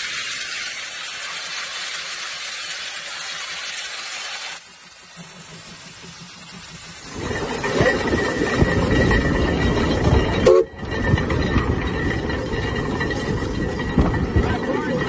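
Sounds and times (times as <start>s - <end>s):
steam traction engine working: 0.0s - 15.0s
low exhaust beats: 4.6s - 15.0s.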